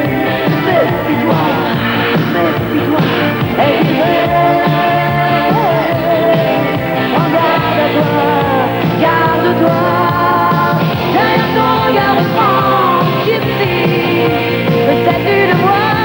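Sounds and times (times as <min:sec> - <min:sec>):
rock band playing: 0:00.0 - 0:16.0.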